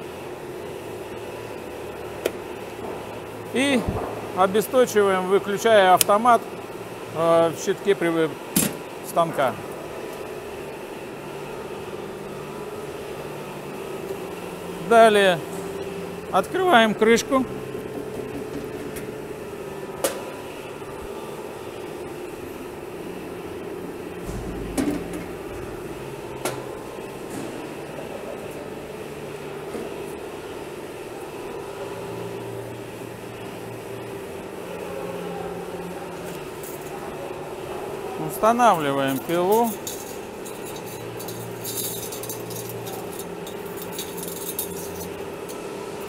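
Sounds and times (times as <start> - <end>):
steady hum: 0.0 - 46.0
low thump: 24.2 - 26.5.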